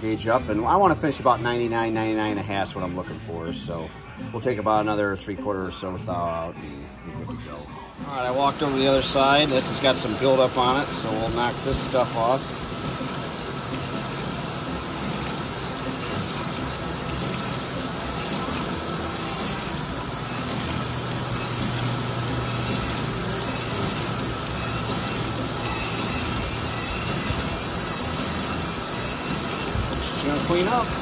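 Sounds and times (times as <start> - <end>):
coolant splashing: 8.0 - 31.0
grinder humming: 8.0 - 31.0.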